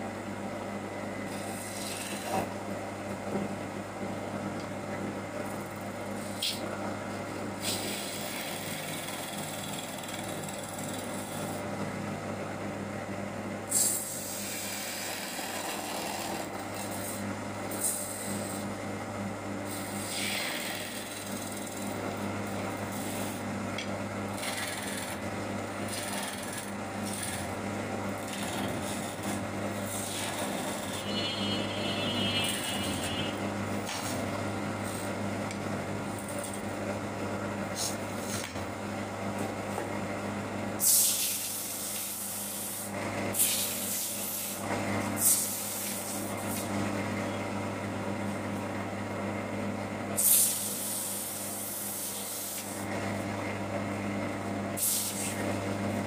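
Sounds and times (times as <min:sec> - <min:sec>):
lathe motor hum: 0:00.0 - 0:40.8
chisel scraping wood on a lathe: 0:01.3 - 0:02.5, 0:07.6 - 0:11.6, 0:14.0 - 0:17.2, 0:19.8 - 0:22.0, 0:22.9 - 0:23.4, 0:25.8 - 0:27.5, 0:28.2 - 0:31.6.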